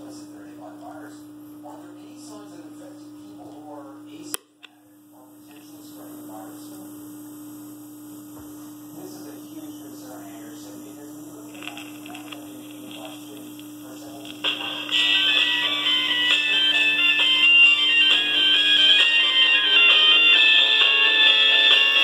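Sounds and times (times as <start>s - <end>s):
record player electrical hum: 0.0s - 22.0s
music from small speaker: 14.3s - 22.0s.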